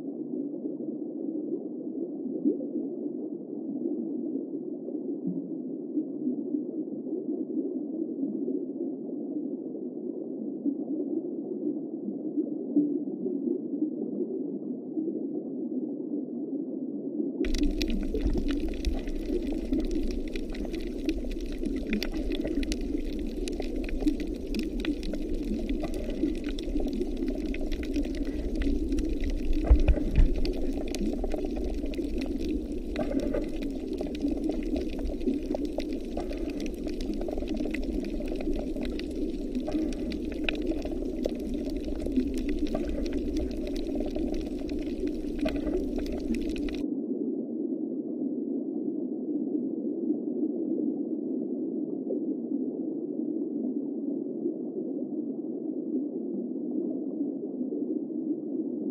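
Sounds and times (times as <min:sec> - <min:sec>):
muffled underwater rush: 0:17.4 - 0:46.8
small clicks and crackles: 0:17.4 - 0:46.8.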